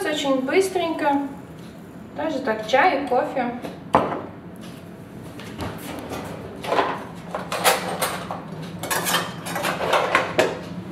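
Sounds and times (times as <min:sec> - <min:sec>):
kitchen items knocking and scraping: 0:06.1 - 0:10.6.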